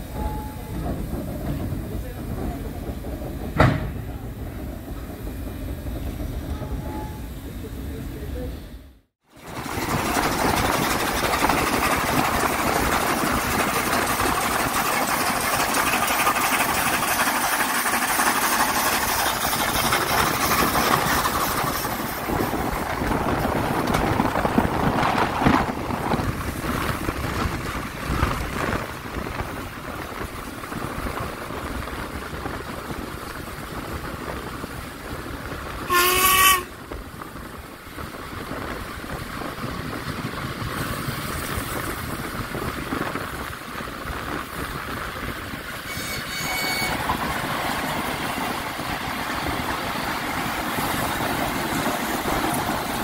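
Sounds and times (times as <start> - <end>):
steam train rumbling: 0.0 - 53.0
train whistle blast: 35.9 - 36.7, 45.9 - 47.0.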